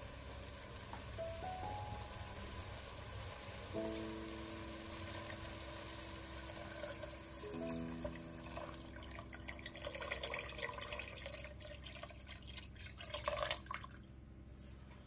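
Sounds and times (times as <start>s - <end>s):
water pouring into pot: 2.2s - 14.2s.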